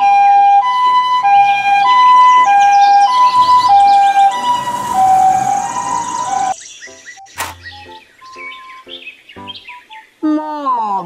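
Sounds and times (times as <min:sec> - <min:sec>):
ambulance two-tone siren: 0:00.0 - 0:06.6.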